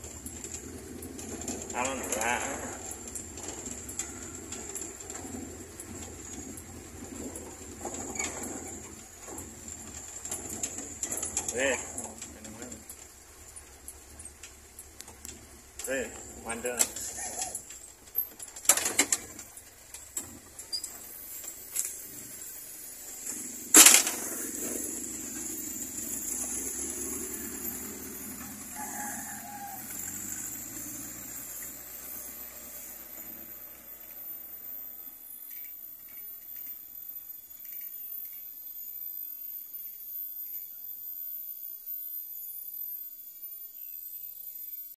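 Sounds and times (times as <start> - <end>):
truck engine driving off: 0.0 - 35.4.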